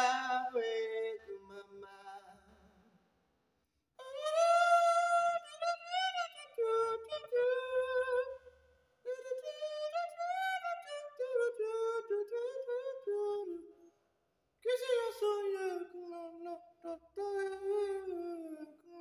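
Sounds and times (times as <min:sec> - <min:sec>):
person singing in high puppet voice: 0:00.0 - 0:00.8, 0:04.0 - 0:08.4, 0:09.1 - 0:13.6, 0:14.7 - 0:19.0.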